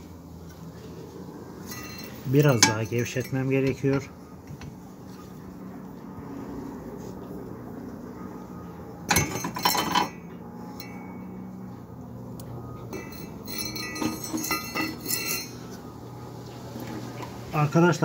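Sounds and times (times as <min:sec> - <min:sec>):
metal lug wrench clinking: 0:01.6 - 0:04.1, 0:09.1 - 0:11.4, 0:12.9 - 0:15.9.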